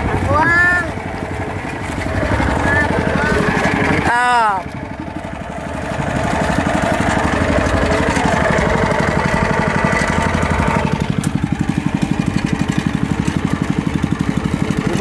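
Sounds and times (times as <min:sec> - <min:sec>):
high whine: 0:00.0 - 0:11.9
boat engine pulsing: 0:00.0 - 0:15.0.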